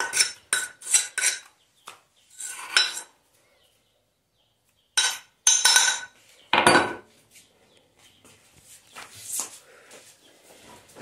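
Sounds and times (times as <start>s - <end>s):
metal mortar clinking: 0.0s - 1.6s, 2.4s - 3.2s, 5.0s - 7.1s.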